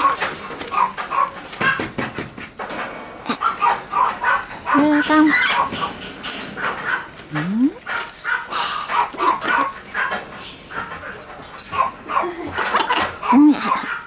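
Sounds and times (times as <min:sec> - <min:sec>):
wings flapping: 0:00.0 - 0:02.8
macaw yelps and grunts: 0:03.2 - 0:05.7, 0:11.8 - 0:14.0.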